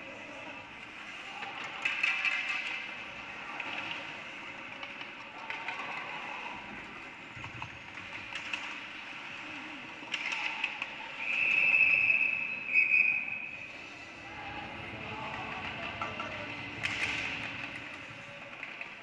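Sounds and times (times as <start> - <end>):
hockey stick and puck clacks: 0.8 - 12.4, 15.2 - 19.0
referee whistle blasts: 11.2 - 13.6.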